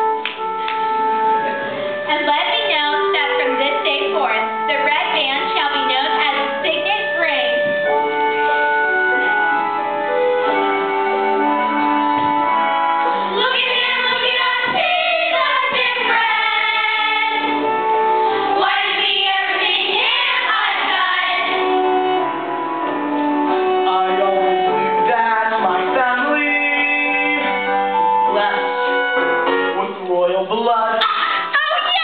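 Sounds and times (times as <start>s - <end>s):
instrumental accompaniment: 0.0s - 32.0s
children singing together: 13.3s - 17.6s, 18.6s - 21.7s.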